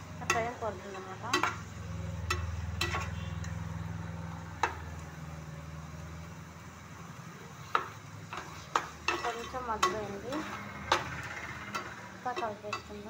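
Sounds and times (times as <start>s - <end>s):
metal spatula scraping a pot: 0.2s - 3.7s, 8.3s - 13.0s.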